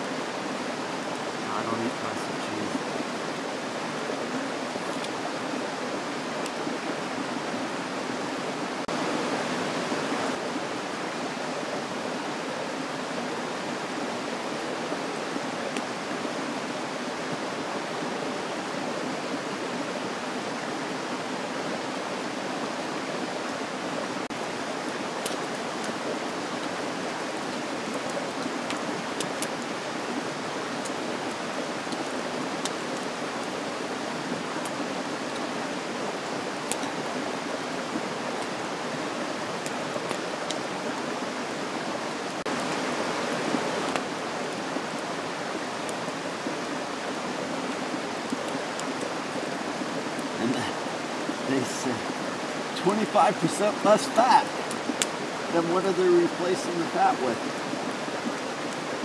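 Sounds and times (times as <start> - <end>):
campfire snaps: 6.4 - 6.8, 24.3 - 33.7, 34.4 - 38.7, 39.5 - 41.1, 42.2 - 45.0, 47.8 - 55.6.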